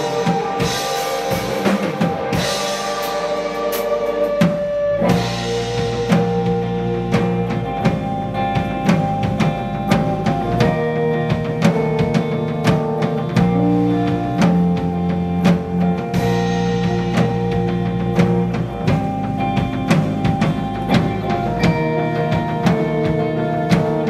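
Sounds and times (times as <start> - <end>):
drum kit beating: 0.0 - 24.0
guitar and bass notes: 0.0 - 24.0.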